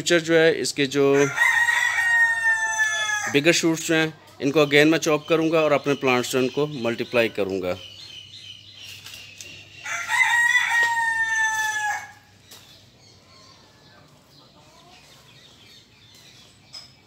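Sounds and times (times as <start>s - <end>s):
faint outdoor background: 0.0s - 17.0s
rooster crowing: 1.2s - 3.4s, 9.8s - 12.3s.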